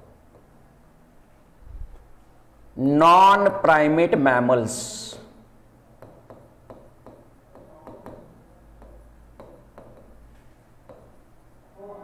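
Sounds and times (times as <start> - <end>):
pen tapping on glass screen: 6.0 - 10.2, 10.8 - 11.2.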